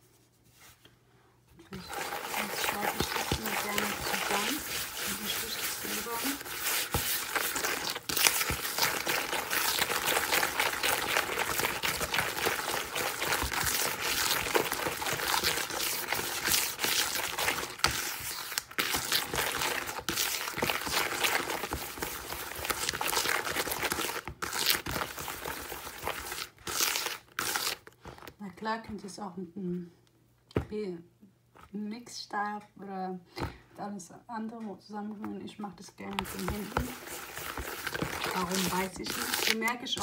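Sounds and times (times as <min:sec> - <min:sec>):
fingers squelching egg in bowl: 0:01.7 - 0:27.8, 0:36.2 - 0:40.0.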